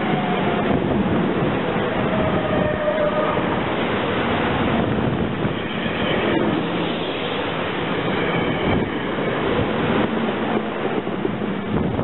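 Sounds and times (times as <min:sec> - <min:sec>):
train wheels running on rails: 0:00.0 - 0:12.0.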